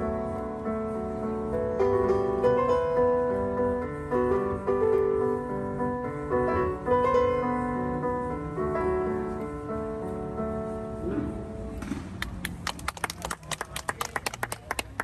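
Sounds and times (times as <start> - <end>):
grand piano playing: 0.0 - 11.7.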